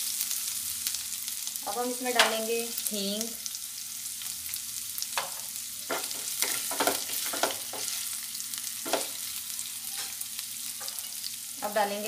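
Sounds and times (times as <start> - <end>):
hot oil sizzling in a pan: 0.0 - 12.0
spatula scraping a pan: 5.2 - 9.3, 9.9 - 11.3.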